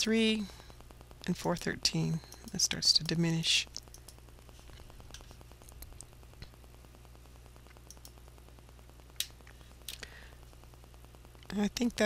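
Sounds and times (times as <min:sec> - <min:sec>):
faint electrical hum: 0:00.0 - 0:12.0
computer mouse clicks: 0:02.2 - 0:04.2, 0:07.7 - 0:08.2.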